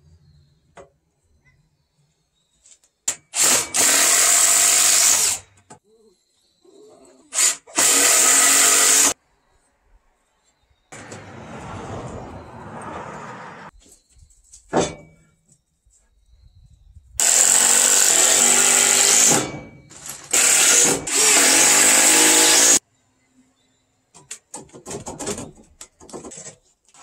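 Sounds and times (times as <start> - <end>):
cordless drill running: 3.4 - 5.4, 7.4 - 9.2, 17.2 - 19.3, 20.3 - 22.8.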